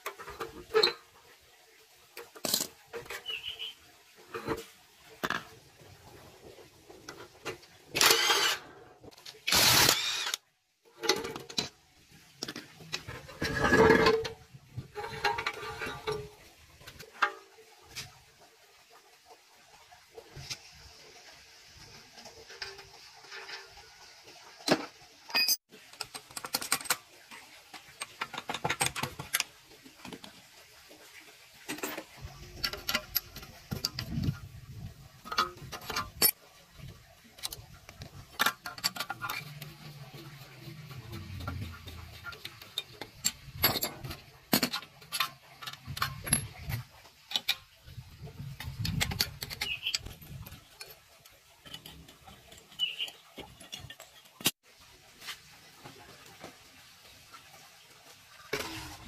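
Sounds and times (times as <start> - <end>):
metal parts and tools clinking: 7.1 - 10.4, 11.0 - 11.8, 12.4 - 16.4, 25.3 - 29.5, 31.7 - 34.4, 35.2 - 36.4, 37.4 - 54.6.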